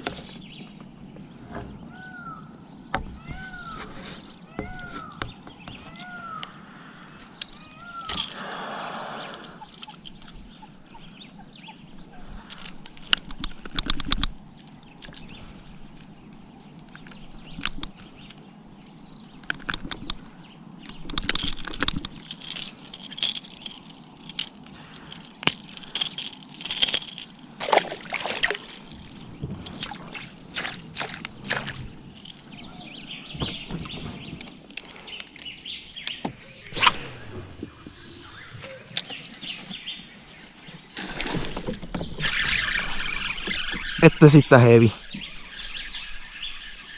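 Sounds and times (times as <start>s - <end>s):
water sloshing and splashing: 25.7s - 32.5s.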